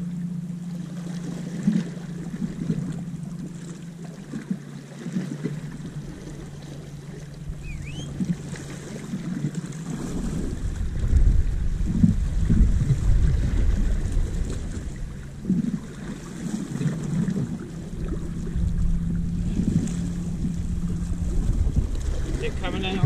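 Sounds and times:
low steady hum: 0.0s - 23.0s
waves lapping on rocks: 1.0s - 23.0s
wind buffeting microphone: 7.4s - 23.0s
short high chirp: 7.6s - 8.2s.

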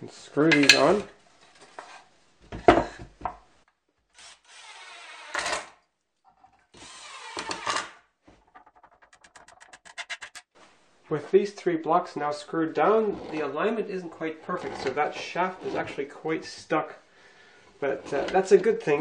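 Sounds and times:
cordless drill driving screws: 4.2s - 5.8s, 6.7s - 8.0s.

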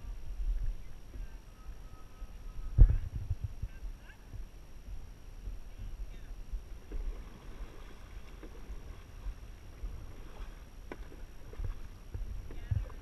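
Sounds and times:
wind rumble on microphone: 0.0s - 13.0s
paddles splashing in water: 6.7s - 13.0s.

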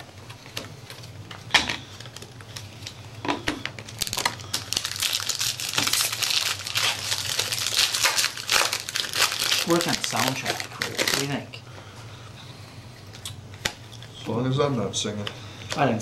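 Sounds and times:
foil packs crinkling: 1.9s - 3.0s, 3.6s - 11.5s.

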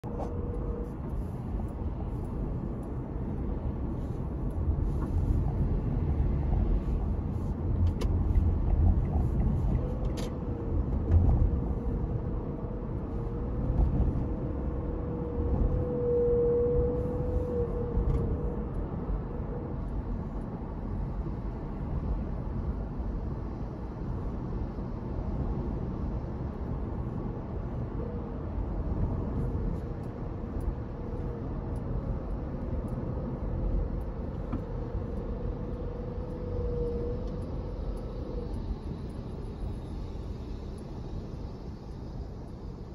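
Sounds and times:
car road rumble: 0.0s - 42.9s
faint wavering whine: 28.0s - 42.9s.

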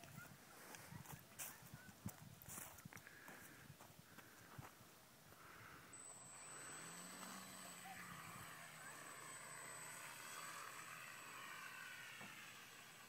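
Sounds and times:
model airplane motor whine: 5.4s - 13.0s.

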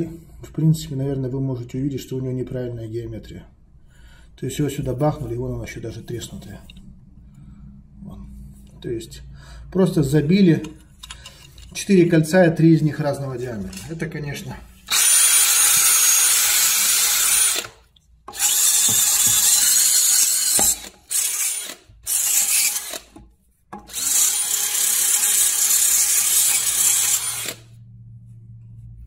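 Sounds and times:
power drill running: 14.8s - 23.2s, 23.8s - 27.8s.

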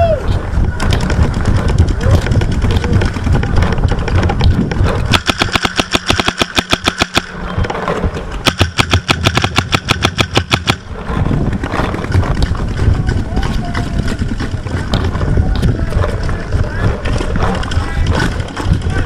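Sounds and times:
wind rumble on microphone: 0.0s - 19.0s
paintball marker rapid firing: 0.8s - 7.4s, 8.4s - 10.9s.

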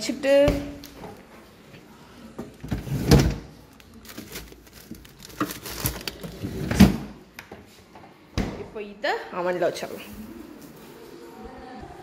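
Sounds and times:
freezer drawer opening and shutting: 2.6s - 7.2s
plastic bag handling: 3.4s - 6.6s.

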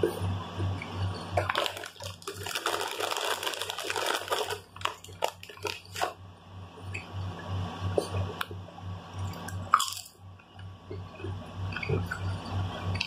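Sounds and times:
low pulsing hum: 0.0s - 13.0s
plastic bag crinkling: 1.4s - 6.2s.

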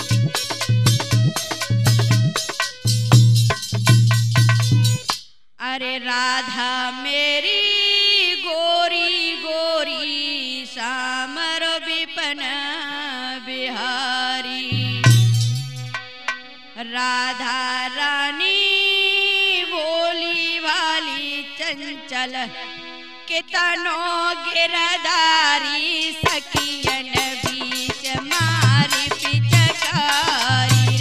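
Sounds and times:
hand drum and jingles: 0.0s - 5.2s, 26.2s - 31.0s
deep drum stroke: 14.7s - 16.4s.

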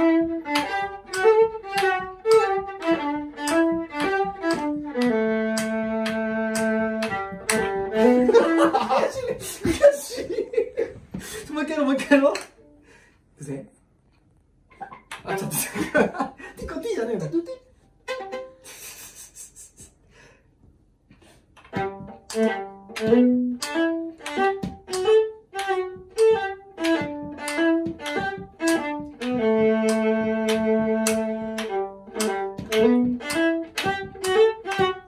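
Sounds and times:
bowed viola tune: 0.0s - 9.4s, 17.8s - 18.7s, 21.6s - 35.0s.

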